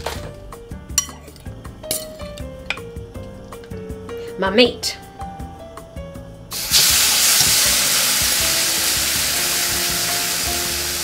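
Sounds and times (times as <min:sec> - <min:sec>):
beef sizzling in a hot pan: 0:06.5 - 0:11.0.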